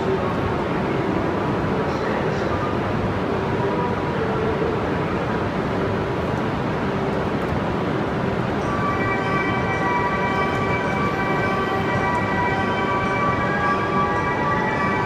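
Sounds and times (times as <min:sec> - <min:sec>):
train humming at platform: 0:00.0 - 0:15.0
platform departure melody: 0:08.7 - 0:15.0.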